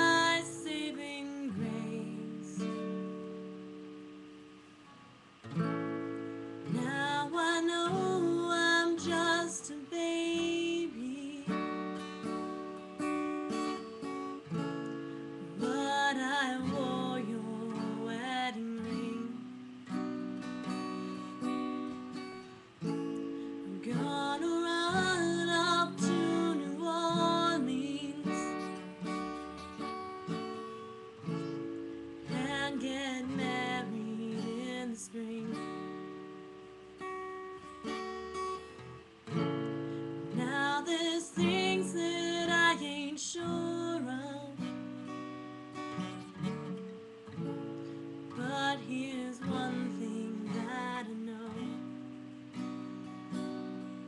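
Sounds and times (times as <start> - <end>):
person singing: 0.0 - 2.8, 6.7 - 11.8, 15.6 - 19.6, 23.6 - 28.8, 32.3 - 36.0, 40.3 - 44.8, 48.3 - 52.0
strummed acoustic guitar: 0.0 - 54.0.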